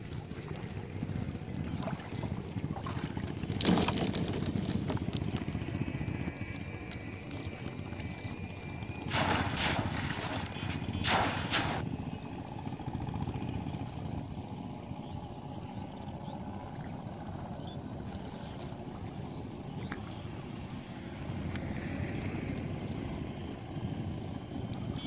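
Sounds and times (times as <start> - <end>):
trickling water: 0.0 - 11.8
steady low rumble: 0.0 - 25.0
water splashing: 9.0 - 11.8.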